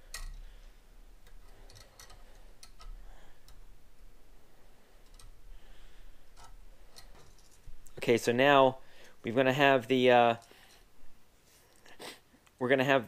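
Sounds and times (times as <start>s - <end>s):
pliers clicking on wire: 0.0s - 0.5s, 1.2s - 3.6s, 5.0s - 5.4s.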